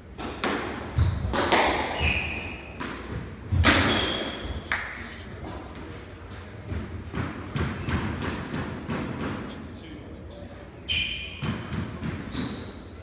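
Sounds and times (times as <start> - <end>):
squash ball knocks echoing: 0.0 - 4.6, 6.6 - 9.5, 11.3 - 12.3
shoe squeaks: 0.9 - 2.8, 3.8 - 4.7, 10.8 - 13.0.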